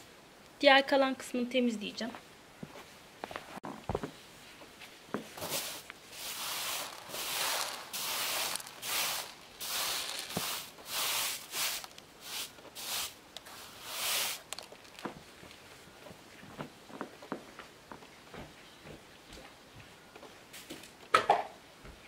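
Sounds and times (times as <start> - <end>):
hand brush sweeping carpet: 5.2 - 15.0.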